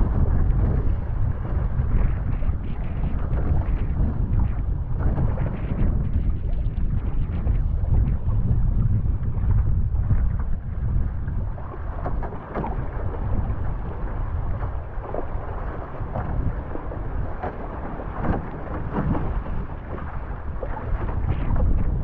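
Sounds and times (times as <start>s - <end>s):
paddle splashes: 0.0s - 22.0s
wind buffeting microphone: 0.0s - 22.0s
water rushing and splashing: 10.0s - 22.0s.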